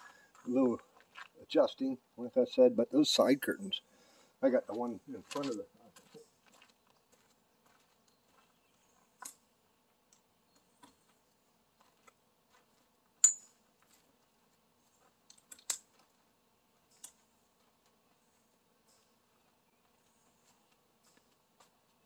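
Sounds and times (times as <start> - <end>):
small hardware clicking and snapping: 15.3 - 15.9.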